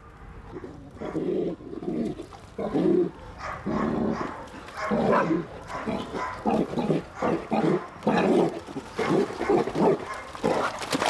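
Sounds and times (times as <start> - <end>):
dogs barking: 0.5 - 1.3, 3.0 - 11.0.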